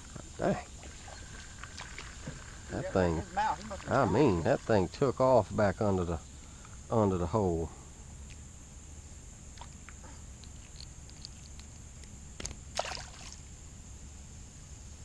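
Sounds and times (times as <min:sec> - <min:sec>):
short splash in water: 0:12.8 - 0:13.4.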